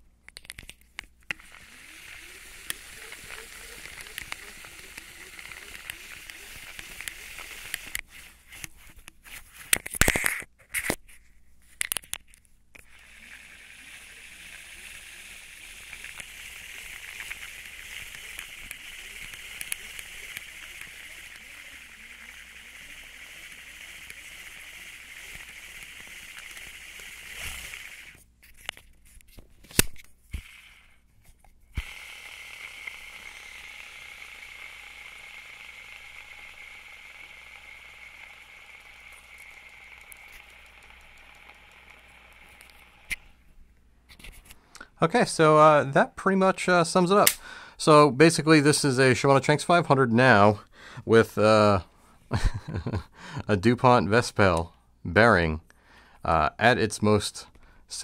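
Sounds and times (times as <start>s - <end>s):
clicks and knocks handling reel: 0.3s - 11.0s, 11.8s - 43.3s
fishing reel gears whirring: 1.4s - 8.0s, 12.8s - 28.2s, 31.7s - 43.3s.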